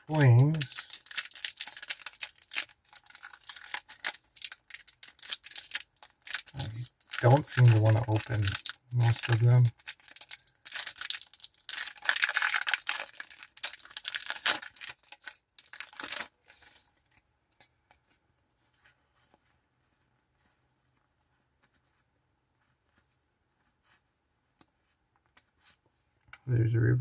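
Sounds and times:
foil wrapper tearing and crinkling: 0.0s - 16.9s.

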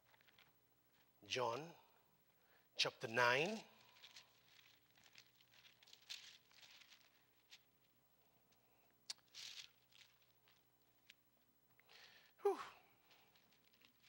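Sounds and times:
thin pages being turned: 3.6s - 8.0s, 9.1s - 11.2s, 13.1s - 14.0s.

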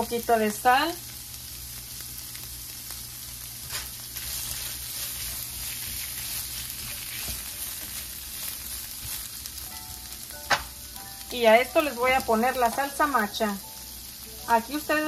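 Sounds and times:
shrimp sizzling in a frying pan: 0.0s - 15.0s
spatula stirring in a pan: 3.6s - 9.7s.

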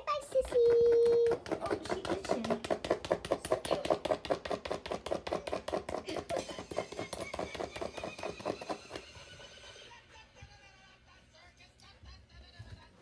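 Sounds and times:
dog scratching with hind leg: 0.6s - 9.0s.

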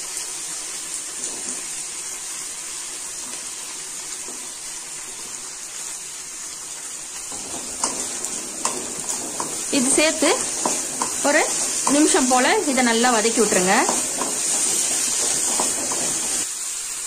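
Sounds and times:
hot oil sizzling: 0.0s - 17.0s
wooden spatula scraping: 7.3s - 16.5s.

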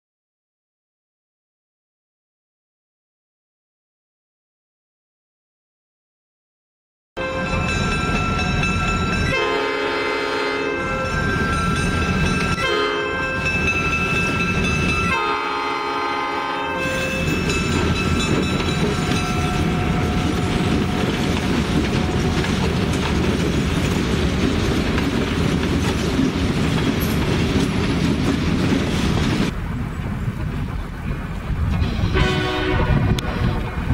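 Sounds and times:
locomotive air horn: 7.2s - 7.7s, 9.3s - 11.2s, 12.5s - 13.4s, 15.1s - 17.4s, 32.1s - 33.9s
train rumbling past: 7.2s - 33.9s.

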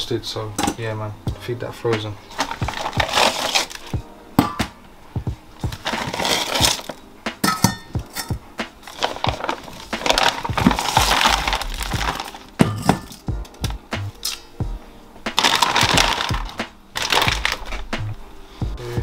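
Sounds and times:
plastic bag rustling: 2.2s - 4.0s, 5.6s - 7.0s, 8.8s - 13.3s, 15.3s - 17.9s
frozen fish clinking on steel bowls: 2.3s - 3.9s, 5.7s - 13.3s, 15.4s - 17.8s.

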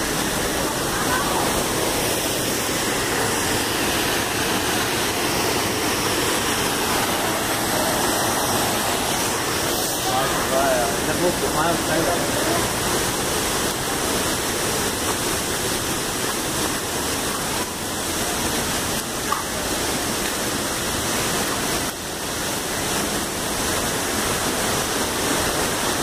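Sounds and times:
waterfall rushing: 0.0s - 26.0s.

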